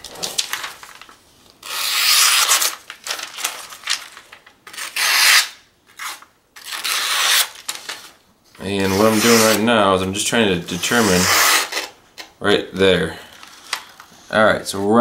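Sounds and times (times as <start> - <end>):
knife slicing through paper: 8.8 - 9.6.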